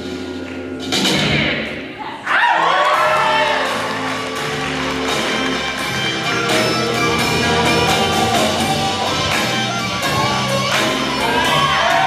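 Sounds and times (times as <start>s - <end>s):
drums keeping a steady beat: 3.6s - 12.0s
live blues band playing: 3.6s - 12.0s.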